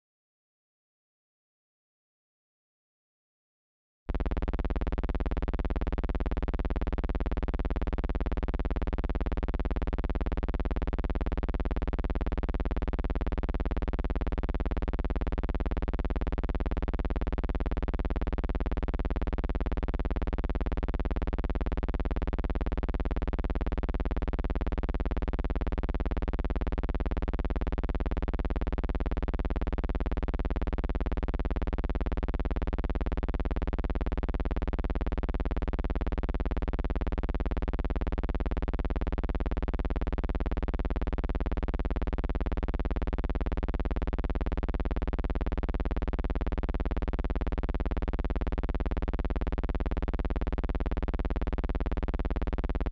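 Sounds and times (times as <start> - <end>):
buzzing hum: 4.1 - 21.0.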